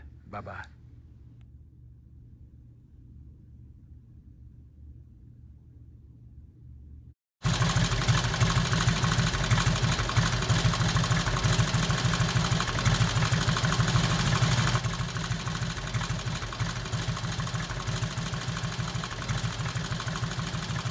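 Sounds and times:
motorcycle engine idling: 0:07.4 - 0:20.9.

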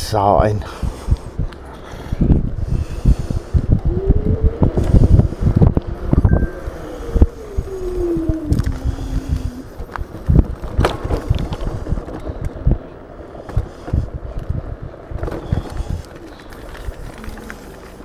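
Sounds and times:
wind buffeting microphone: 0:00.0 - 0:18.0
electric motor whine: 0:06.2 - 0:09.6
scooter thumping and rattling: 0:09.8 - 0:12.9, 0:13.5 - 0:17.2.

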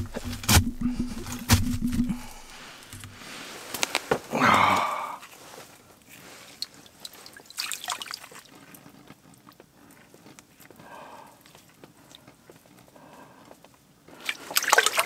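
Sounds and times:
water sloshing: 0:00.0 - 0:03.4, 0:06.4 - 0:08.6.

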